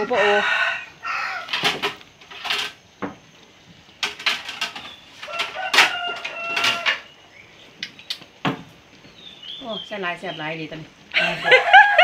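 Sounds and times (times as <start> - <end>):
rooster crowing: 0.0 - 1.7, 5.2 - 7.2, 11.2 - 12.0.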